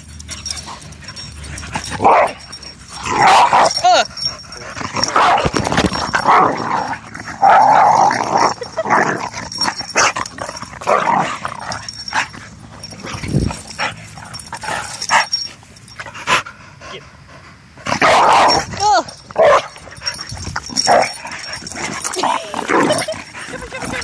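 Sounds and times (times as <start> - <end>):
dogs growling: 0.0 - 24.0.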